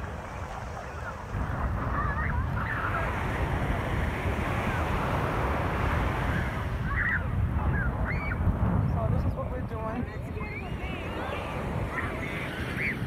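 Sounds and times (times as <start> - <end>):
surf washing on sandy beach: 0.0 - 13.0
wind buffeting microphone: 0.0 - 13.0.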